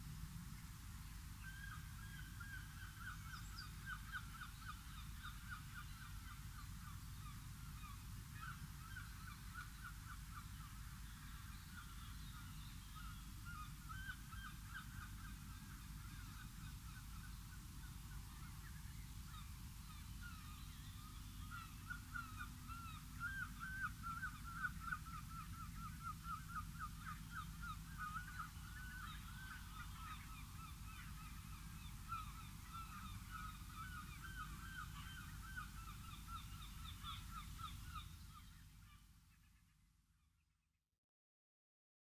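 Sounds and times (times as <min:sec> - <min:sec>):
many birds calling: 0:18.3 - 0:39.0.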